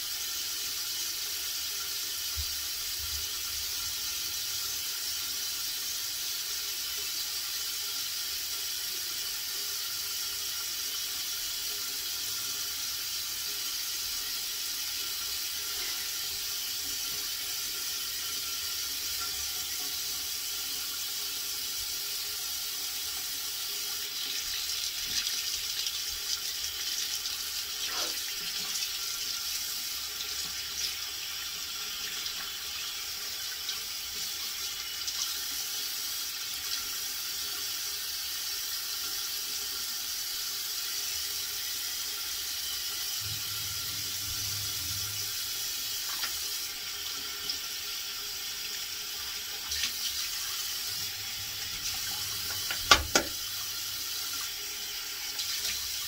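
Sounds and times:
water running: 0.0 - 56.0.

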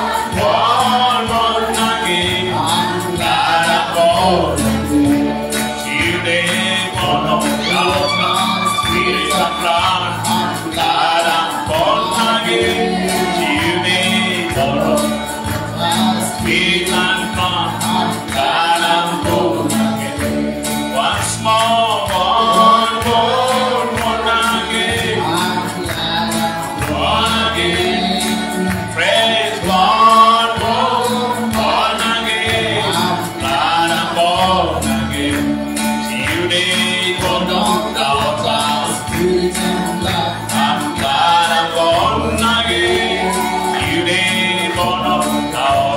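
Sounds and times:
voices singing over a band: 0.0 - 45.9.

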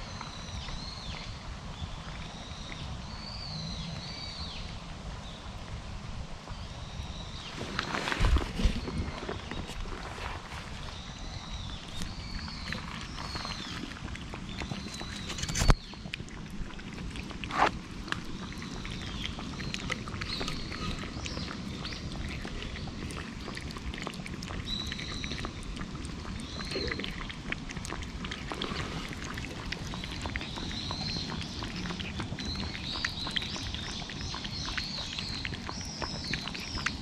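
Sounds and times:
cat lapping water: 0.1 - 37.0
birds chirping: 6.6 - 16.2, 17.5 - 27.5, 28.2 - 37.0.

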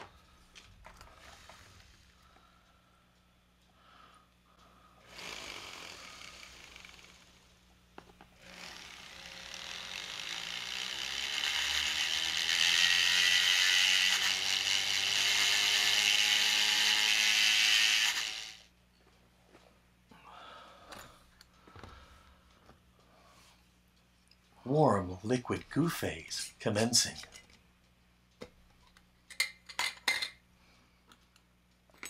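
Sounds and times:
rotary tool grinding whine: 0.8 - 2.2, 5.0 - 18.7.

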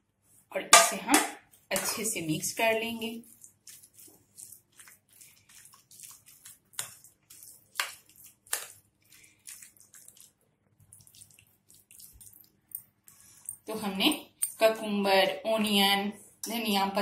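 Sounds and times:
wet squelches and scrapes: 1.4 - 13.7.

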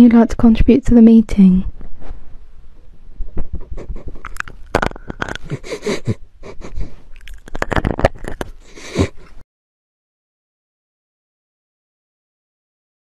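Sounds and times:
microphone clicks and rubbing: 1.6 - 6.0, 6.6 - 9.4
dog sniffing and snuffling: 5.4 - 7.4, 8.5 - 9.4.

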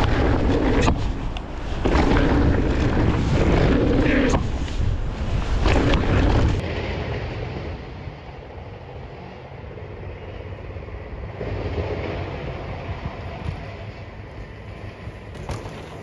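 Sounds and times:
bike tyres rolling over dirt: 0.0 - 16.0
wind buffeting microphone: 0.0 - 16.0.

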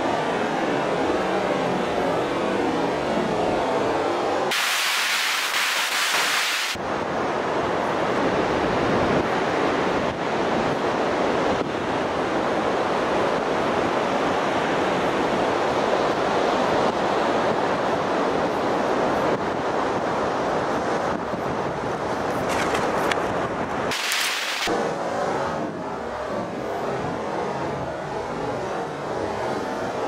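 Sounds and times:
bright hiss: 4.5 - 6.8
wind buffeting microphone: 6.8 - 24.0
surf breaking on beach: 23.9 - 24.7.

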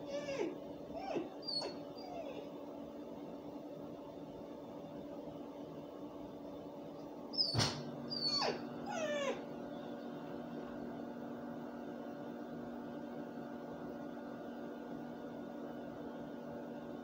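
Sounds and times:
dog yip: 0.0 - 2.5, 7.4 - 9.4
dog whimpering: 0.0 - 2.6, 7.4 - 9.5.

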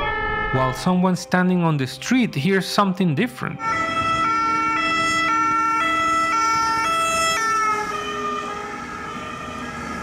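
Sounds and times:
two-tone ambulance siren: 0.0 - 1.0, 3.6 - 10.0.

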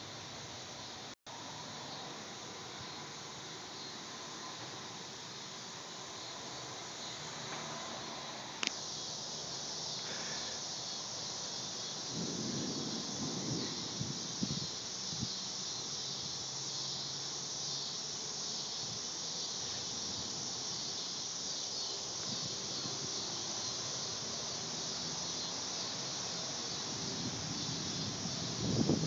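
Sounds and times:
steady high-pitched hiss: 0.0 - 29.0
wind thumps on microphone: 12.1 - 15.4, 27.0 - 29.0.

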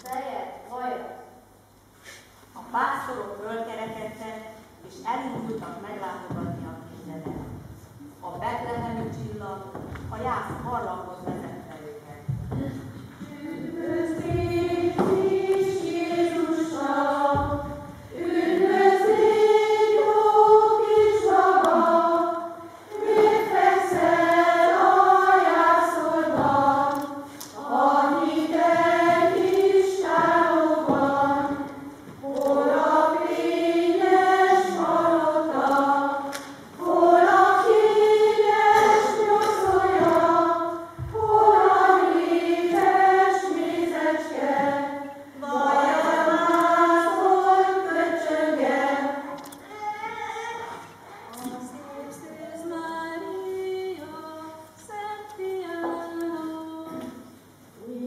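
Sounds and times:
women's choir singing: 13.2 - 49.6, 51.4 - 58.0.

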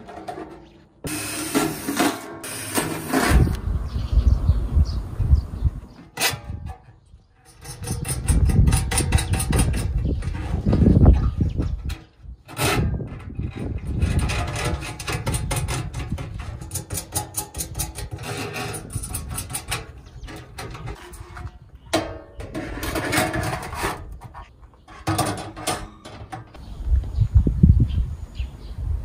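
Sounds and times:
metal rubbing and clicks: 6.0 - 26.6
wire rack clattering on steel pans: 25.0 - 26.5.

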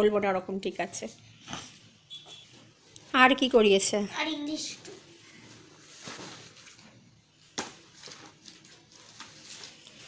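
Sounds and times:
paper notebooks rustling: 5.3 - 10.0.

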